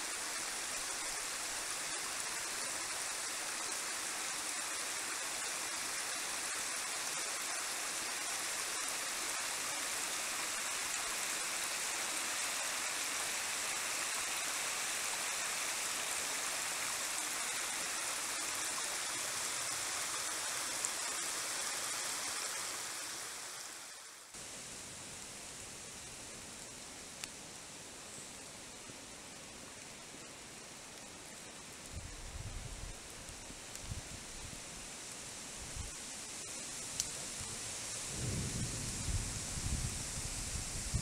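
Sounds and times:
creek rushing: 0.0s - 24.4s.

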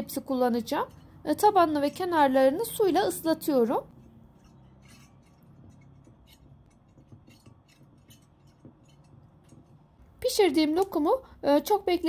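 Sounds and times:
brush brushing against glass: 4.0s - 9.8s
brush tapping on glass dish: 4.0s - 9.9s.

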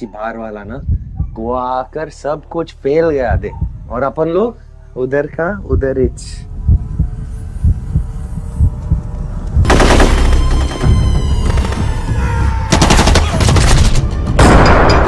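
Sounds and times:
rapid automatic gunfire: 9.6s - 10.5s, 12.7s - 13.9s.

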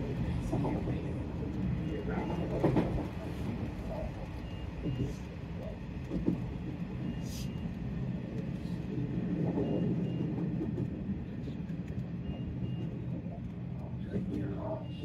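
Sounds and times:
train rumbling on rails: 0.0s - 15.0s
faint high beeps: 14.4s - 15.0s.

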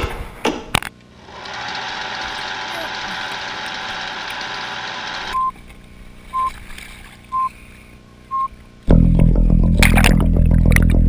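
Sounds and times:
short electronic beeps: 5.3s - 5.6s, 6.3s - 6.6s, 7.3s - 7.5s, 8.3s - 8.5s.

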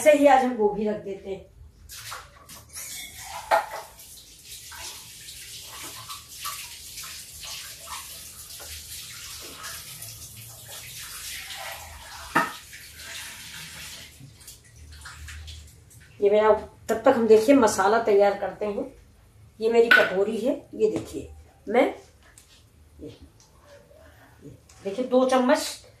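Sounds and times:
water running: 1.8s - 17.9s.

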